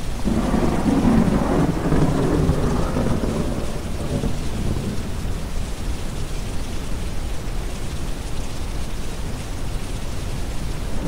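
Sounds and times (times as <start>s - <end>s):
steady rain: 0.0s - 11.0s
thunder rolling: 0.2s - 5.2s.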